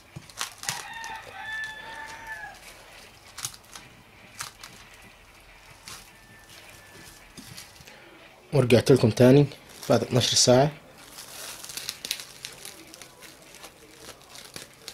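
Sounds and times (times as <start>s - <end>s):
cling film crinkling: 0.0s - 8.1s, 9.2s - 14.9s
rooster crowing: 0.6s - 2.8s, 6.0s - 7.6s.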